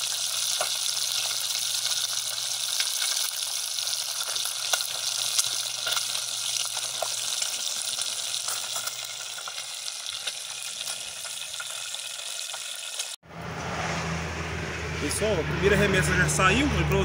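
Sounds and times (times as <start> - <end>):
fish sizzling in hot oil: 0.0 - 13.2.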